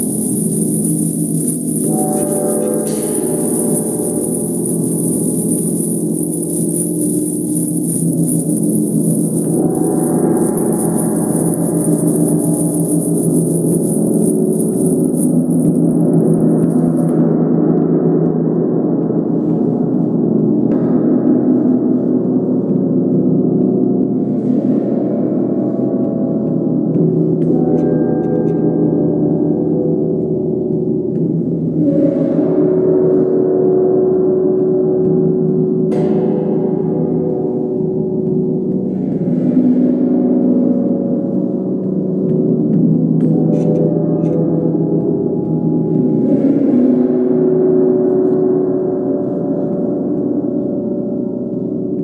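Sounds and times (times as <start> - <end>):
gong ringing: 0.0 - 17.1.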